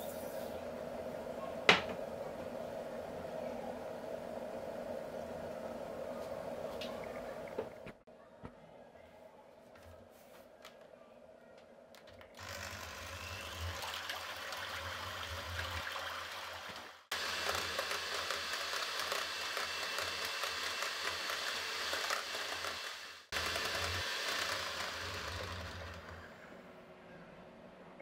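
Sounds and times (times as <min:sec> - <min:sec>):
electric hand mixer humming: 0:12.4 - 0:26.5.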